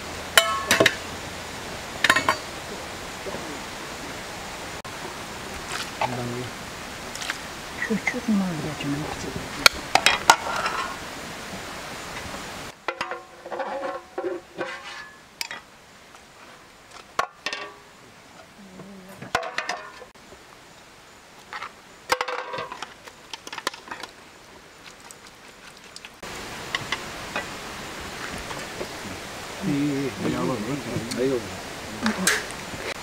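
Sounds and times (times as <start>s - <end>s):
outdoor background noise: 0.0s - 33.0s
metal spoon clinking on pan and plates: 0.4s - 1.0s, 2.0s - 2.5s, 17.4s - 17.9s.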